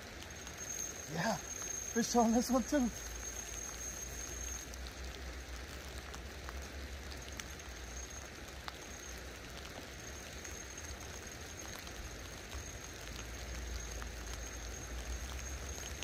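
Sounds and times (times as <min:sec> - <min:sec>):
light rain pattering: 0:00.0 - 0:16.0
rain drop ticks: 0:00.0 - 0:16.0.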